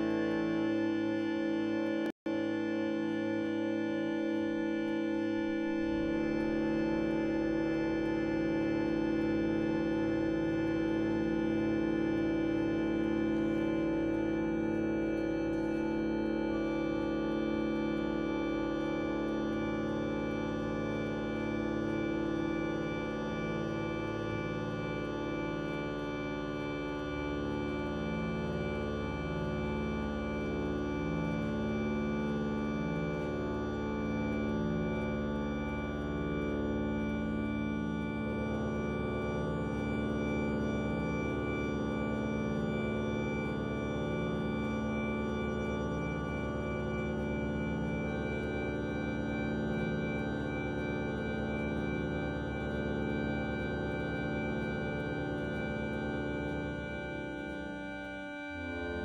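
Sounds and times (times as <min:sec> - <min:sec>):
harmonium chords: 0:56.3 - 0:59.0.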